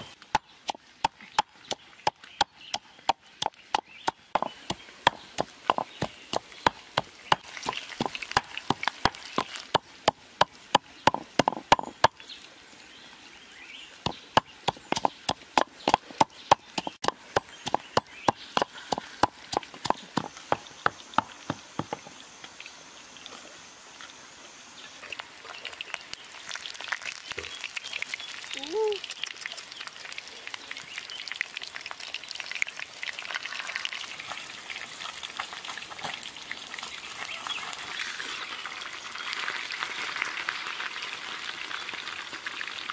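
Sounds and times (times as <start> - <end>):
pestle pounding in clay mortar: 0.3 - 12.2, 14.0 - 22.1
fish frying in oil: 6.4 - 10.7, 25.1 - 42.9.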